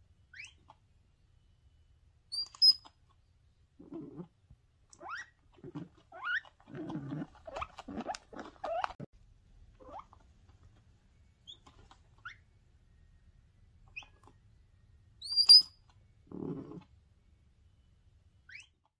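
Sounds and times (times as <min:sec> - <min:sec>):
animal high squeaks: 0:00.3 - 0:00.6, 0:02.3 - 0:02.9, 0:05.0 - 0:09.1, 0:13.9 - 0:14.3, 0:15.2 - 0:15.8, 0:18.5 - 0:18.8.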